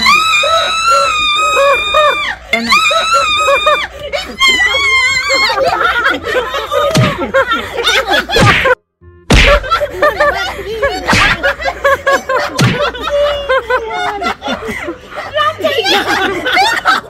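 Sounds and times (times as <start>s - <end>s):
women shrieking and laughing: 0.0s - 8.8s, 9.5s - 17.0s.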